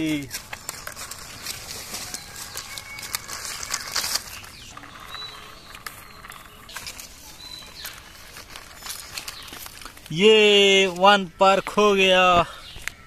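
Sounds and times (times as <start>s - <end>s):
plastic wheels rolling on concrete: 0.0s - 12.0s
toy clicking and rattling: 0.1s - 10.2s.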